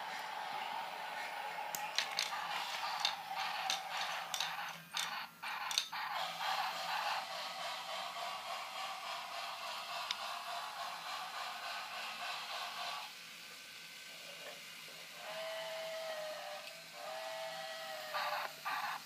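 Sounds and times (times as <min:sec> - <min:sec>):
steady hiss: 0:00.0 - 0:19.0
wooden toy train pieces clacking: 0:01.7 - 0:06.1.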